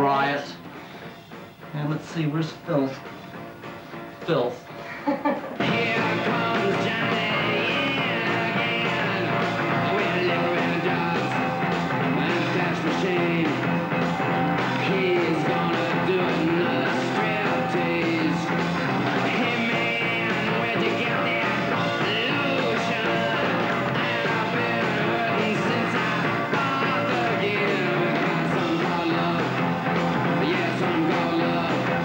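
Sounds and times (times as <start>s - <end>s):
punk rock band playing: 0.0s - 32.0s
person singing: 5.6s - 32.0s.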